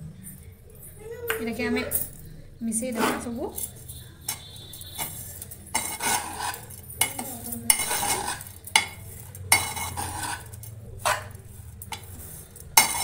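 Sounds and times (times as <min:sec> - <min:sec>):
metal spoon scraping steel bowl: 0:02.7 - 0:13.0.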